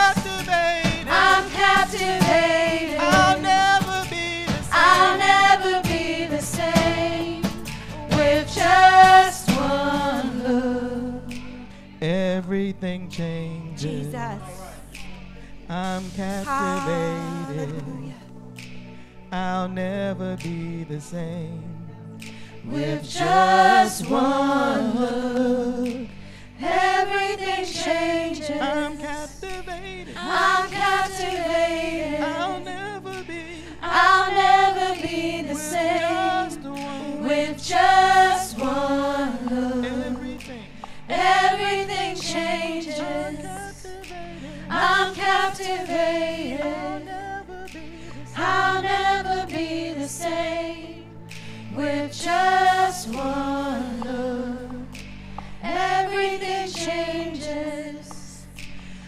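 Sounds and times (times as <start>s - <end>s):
women singing gospel song: 0.0s - 11.9s, 13.7s - 14.9s, 15.7s - 18.2s, 22.4s - 58.8s
held low chords: 0.0s - 59.0s.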